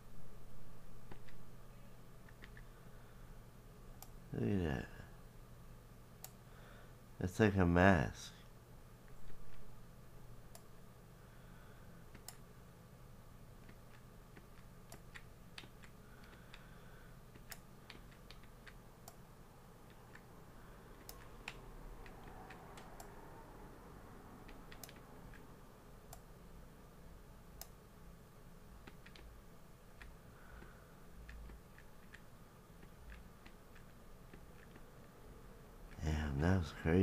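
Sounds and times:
low steady hum: 0:00.0 - 0:37.0
faint computer clicks: 0:24.4 - 0:25.5.

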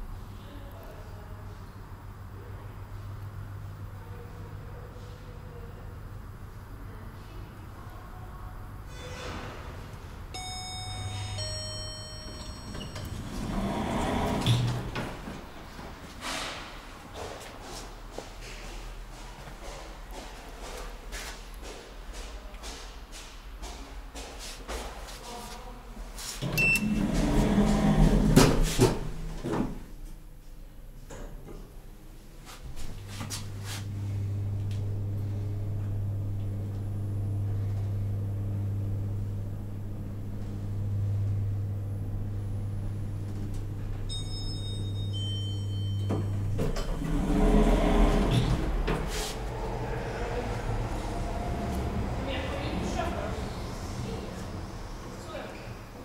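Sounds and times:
elevator doors sliding open: 0:08.9 - 0:16.6, 0:26.4 - 0:29.8, 0:44.9 - 0:54.6
short high beep: 0:10.4 - 0:13.2
two-note electronic chime: 0:10.4 - 0:13.2
door motor hum: 0:10.4 - 0:15.6, 0:26.4 - 0:29.8, 0:32.8 - 0:44.2, 0:46.0 - 0:52.8.

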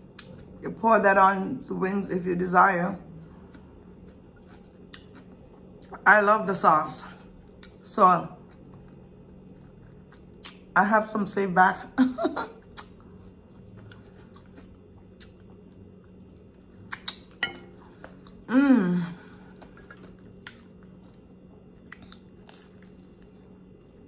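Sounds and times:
woman chewing: 0:03.2 - 0:06.0, 0:08.4 - 0:10.7, 0:12.6 - 0:18.5, 0:19.2 - 0:24.0
woman humming mmm: 0:18.4 - 0:19.3.

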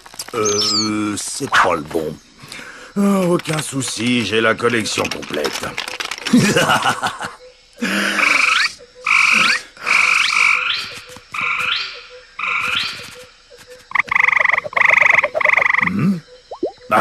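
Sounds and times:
lure whistle croaking calls: 0:00.3 - 0:01.7, 0:08.2 - 0:17.0.

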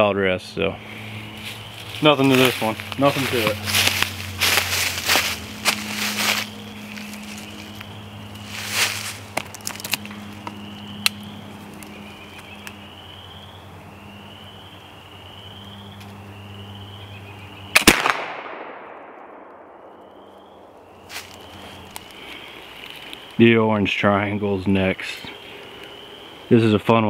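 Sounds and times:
rustling: 0:08.4 - 0:10.1
rifle shot echoing: 0:17.7 - 0:20.8.

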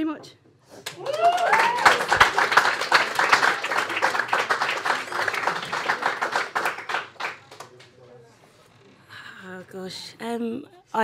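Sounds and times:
audience clapping: 0:00.8 - 0:08.0
whoop of cheering: 0:01.0 - 0:02.3.

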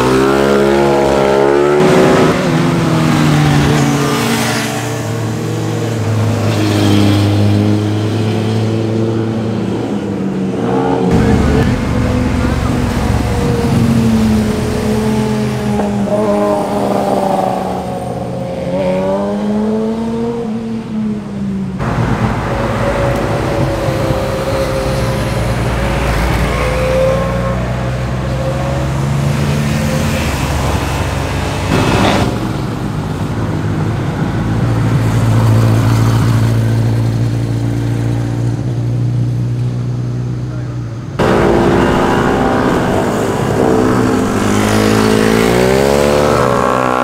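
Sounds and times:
motorcycles riding past revving: 0:41.2 - 0:47.0.

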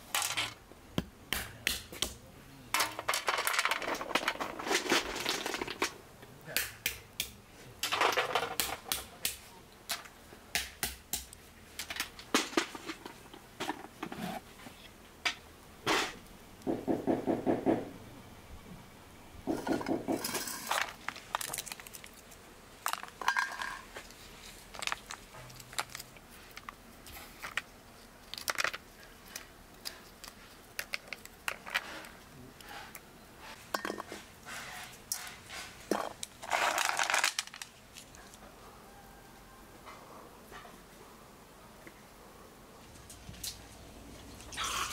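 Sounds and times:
shells clattering onto metal tray: 0:02.8 - 0:06.0, 0:22.9 - 0:23.9
walnut shells cracking: 0:19.5 - 0:23.9, 0:24.6 - 0:26.8, 0:27.4 - 0:31.9, 0:35.9 - 0:38.4.

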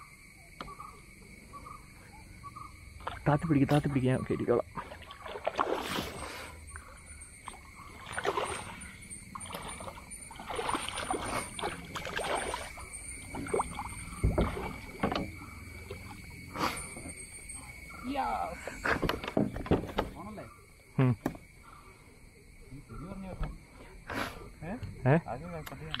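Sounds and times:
fish splashing in water: 0:04.8 - 0:16.9
dull thump: 0:14.1 - 0:15.4, 0:18.8 - 0:20.2.

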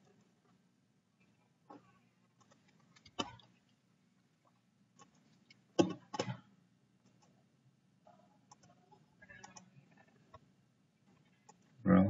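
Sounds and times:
faint low hum: 0:00.0 - 0:12.0
computer mouse clicking: 0:02.4 - 0:03.5, 0:05.0 - 0:06.4, 0:08.5 - 0:10.4, 0:11.2 - 0:11.7.

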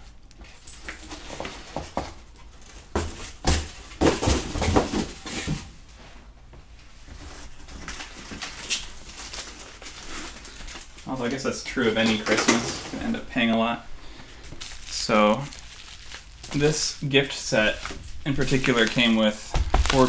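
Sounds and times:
rustling of packaging: 0:07.0 - 0:20.0.

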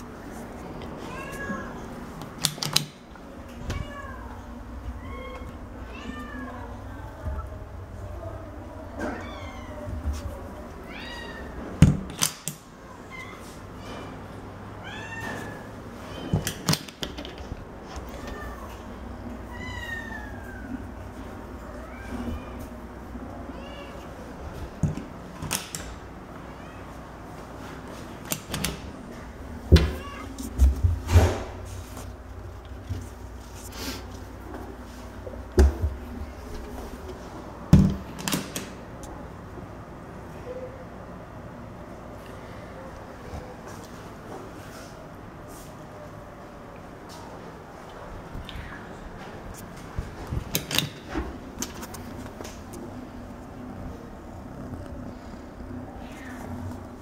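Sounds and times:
cat meowing: 0:03.6 - 0:06.8, 0:09.0 - 0:09.9, 0:10.8 - 0:11.6.

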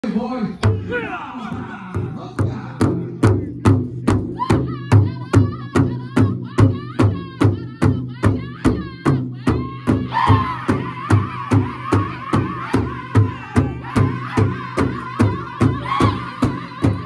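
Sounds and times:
big drum beating: 0:00.6 - 0:17.0
high wavering singing voice: 0:04.4 - 0:17.0.

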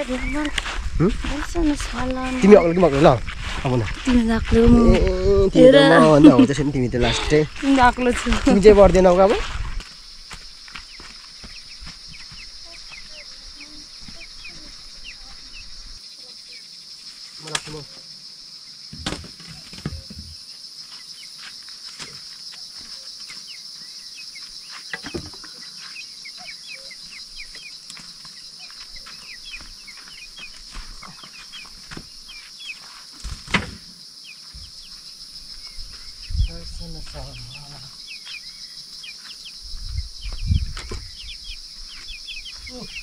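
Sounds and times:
insects trilling: 0:00.0 - 0:43.0
sharp knocks or rustles: 0:18.9 - 0:20.4, 0:33.2 - 0:33.9.

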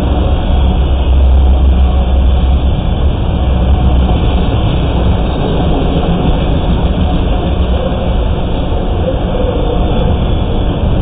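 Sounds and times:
steel wheels rumbling on rails: 0:00.0 - 0:11.0.

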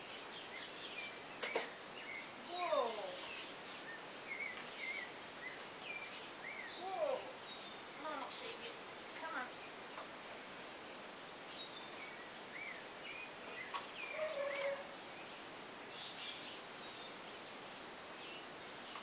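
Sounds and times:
chirping and whistling calls: 0:00.0 - 0:07.8, 0:11.1 - 0:17.4
outdoor background hiss: 0:00.0 - 0:19.0.

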